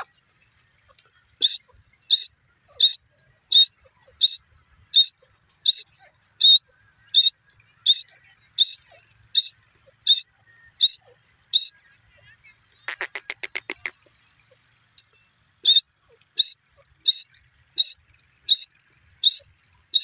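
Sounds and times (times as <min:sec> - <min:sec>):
bird calling high notes: 0:12.9 - 0:14.0.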